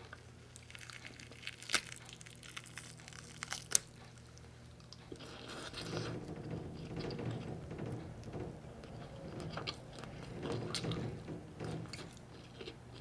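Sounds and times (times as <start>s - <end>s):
close-up chewing: 0.0s - 13.0s
fingers pulling apart soft food: 0.1s - 8.0s.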